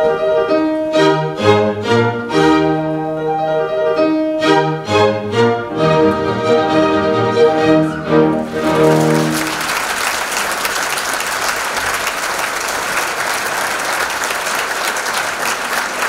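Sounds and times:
audience applause: 0:07.8 - 0:16.0.

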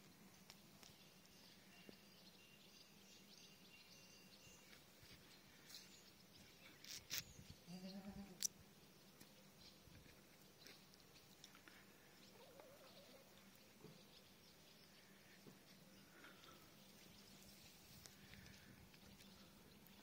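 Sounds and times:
goat bleating: 0:07.7 - 0:08.4.

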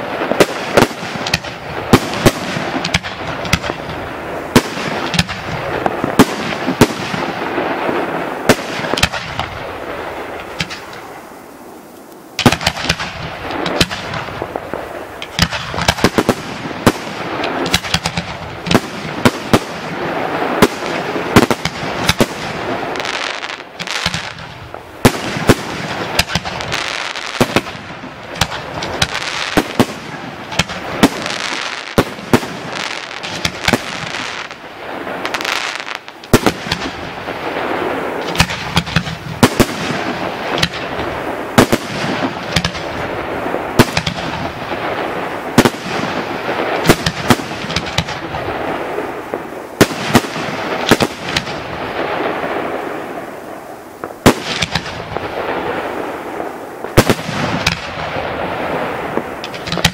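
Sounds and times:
firework shells bursting: 0:00.0 - 0:11.2, 0:11.9 - 0:34.6, 0:58.8 - 0:59.9
firework hiss: 0:00.0 - 0:59.9.

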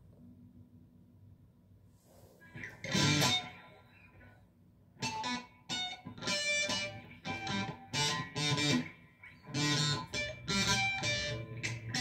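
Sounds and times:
electric guitar picked notes: 0:02.6 - 0:04.0, 0:05.0 - 0:12.0.

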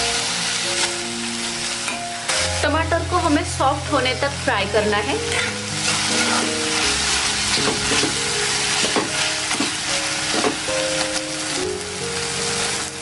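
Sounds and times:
vegetables sizzling in hot oil: 0:00.0 - 0:13.0
spoon scraping and knocking pan: 0:05.2 - 0:10.7.

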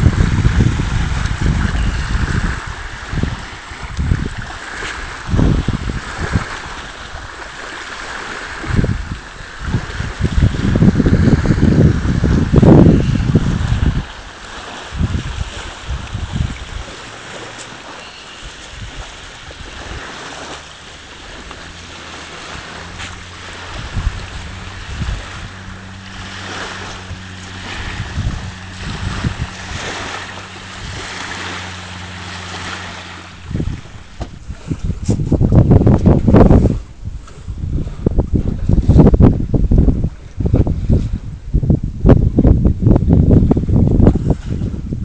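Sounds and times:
wind buffeting microphone: 0:00.0 - 0:45.0
low steady hum: 0:15.1 - 0:45.0.

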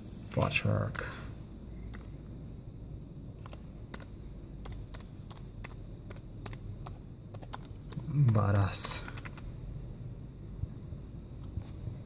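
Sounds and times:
faint low hum: 0:00.0 - 0:12.0
computer keyboard keystrokes: 0:01.9 - 0:02.1, 0:03.4 - 0:09.5.

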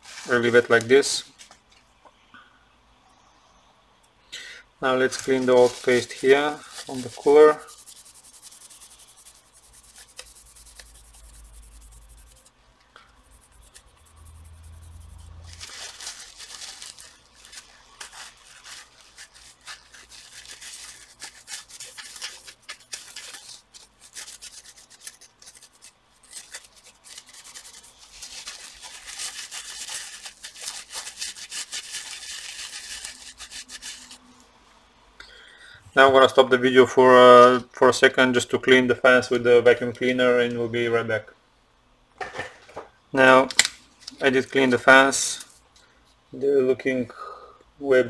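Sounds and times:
tissue scrubbing metal plate: 0:05.2 - 0:12.5, 0:13.1 - 0:34.2.

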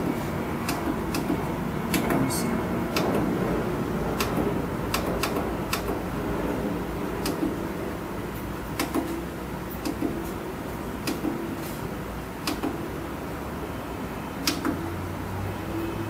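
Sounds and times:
steady low hum: 0:00.0 - 0:16.0
push buttons clicking: 0:12.4 - 0:12.8.

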